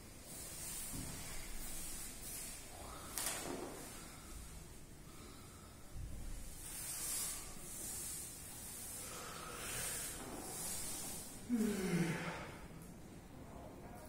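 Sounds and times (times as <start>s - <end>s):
man sighing: 11.4s - 12.7s
man breathing out hard: 11.4s - 12.8s.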